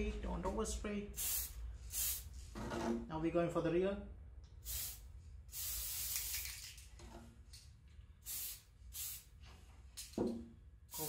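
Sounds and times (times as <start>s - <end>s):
aerosol spray can hissing: 1.2s - 2.3s, 4.6s - 6.7s, 8.3s - 9.3s.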